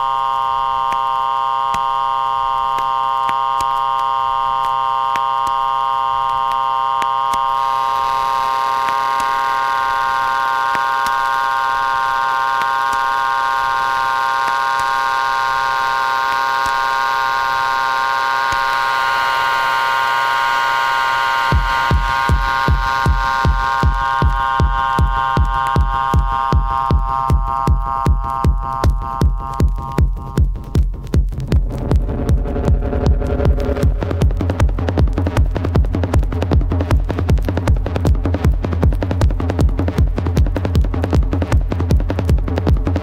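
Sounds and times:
synthesizer drone: 0.0s - 43.0s
kick drum beat: 21.5s - 43.0s.

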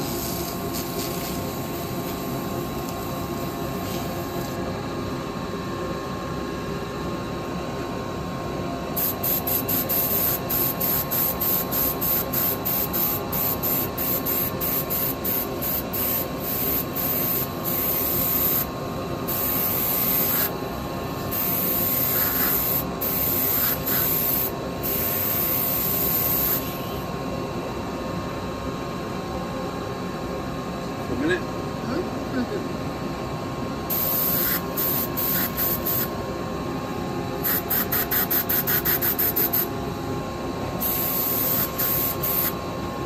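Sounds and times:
steady machine hum: 0.0s - 43.0s
airbrush spraying in hissing bursts: 19.3s - 20.5s, 22.0s - 24.5s, 33.9s - 36.1s, 37.4s - 39.7s, 40.8s - 42.6s.

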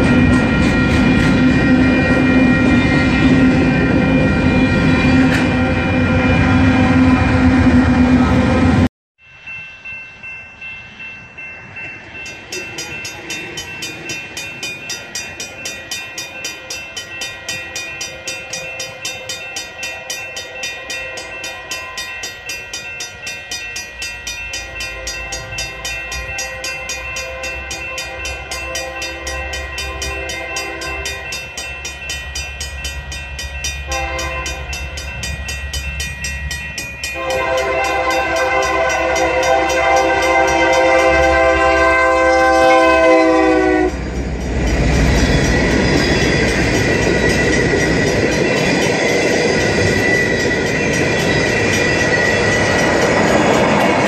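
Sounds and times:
train air horn: 0.0s - 8.8s, 26.3s - 31.3s, 33.9s - 34.7s, 37.2s - 44.1s
train rumble: 0.0s - 54.0s
rhythmic ringing: 9.3s - 41.5s, 43.9s - 54.0s.

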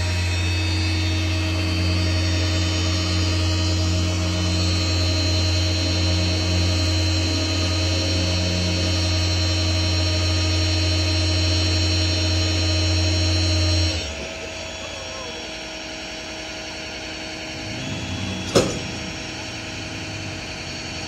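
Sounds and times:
high whine: 0.0s - 21.0s
tow truck engine humming: 0.0s - 21.0s.

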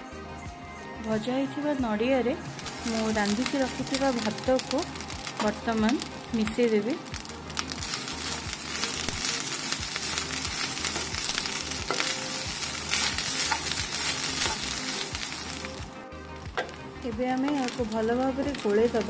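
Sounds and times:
food sizzling in a pan: 1.1s - 19.0s
wooden spatula scraping a pan: 7.2s - 15.6s.

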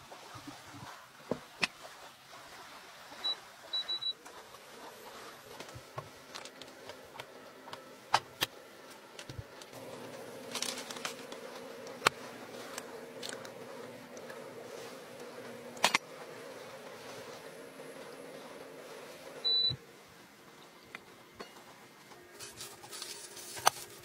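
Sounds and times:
induction cooktop buzzing: 2.6s - 24.0s.

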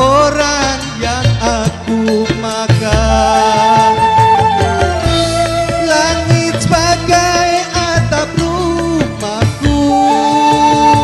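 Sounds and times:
bass: 0.0s - 11.0s
steady drum beats: 0.0s - 11.0s
melody with bending pitch: 1.5s - 8.1s, 9.7s - 11.0s.

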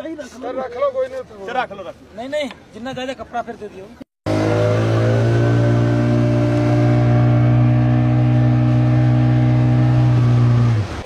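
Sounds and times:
outboard motor running: 4.3s - 11.0s.

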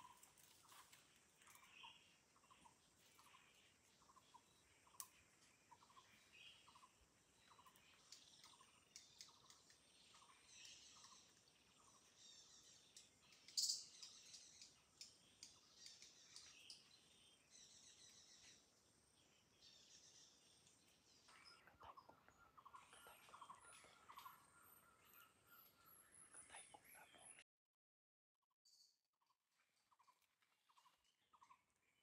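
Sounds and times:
high bird chirps: 5.8s - 17.0s.

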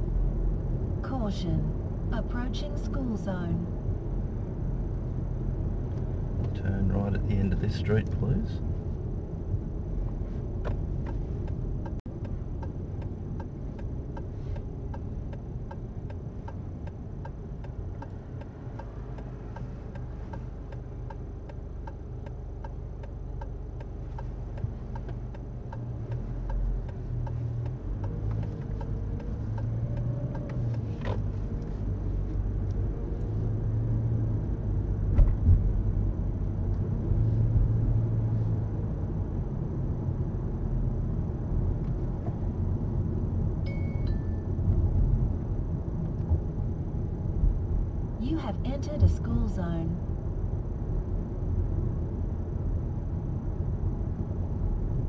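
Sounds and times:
car engine and road noise: 0.0s - 55.0s
turn signal ticking: 10.5s - 33.4s.

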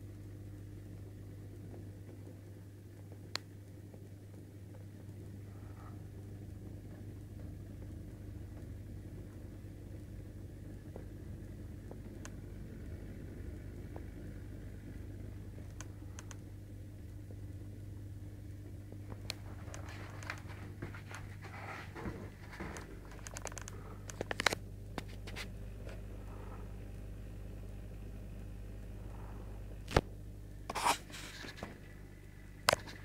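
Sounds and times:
low electrical hum: 0.0s - 33.0s
clicks and scrapes: 30.7s - 31.7s, 32.7s - 33.0s.

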